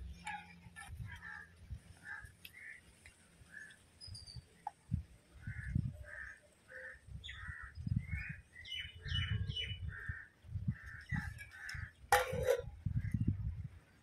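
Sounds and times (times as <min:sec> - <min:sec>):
crows cawing: 0:06.0 - 0:07.7
metal plate clattering on pot: 0:12.1 - 0:12.8.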